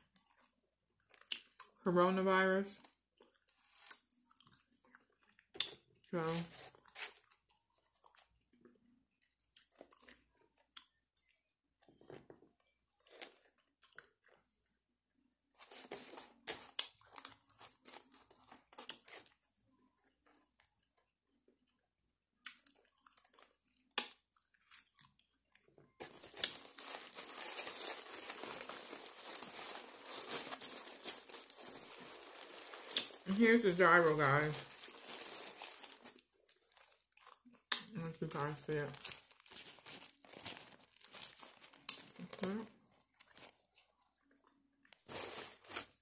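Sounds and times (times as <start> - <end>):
chewing crunchy fries: 0.0 - 1.8, 2.8 - 14.7, 15.6 - 21.8, 22.4 - 33.7, 34.5 - 38.0
food wrapper crinkling: 15.6 - 20.7, 22.7 - 25.2, 26.0 - 46.0.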